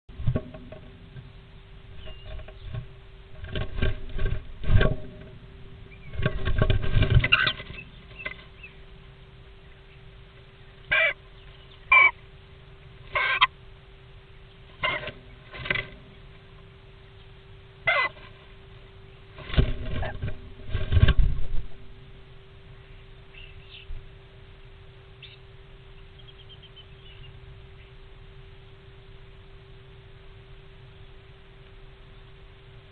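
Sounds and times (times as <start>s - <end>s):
steady hum: 0.1s - 32.9s
faint bird chirps: 1.5s - 2.8s, 22.6s - 24.0s, 25.1s - 31.3s
bird squeaky calls: 10.9s - 12.2s, 13.1s - 13.5s, 17.9s - 18.2s.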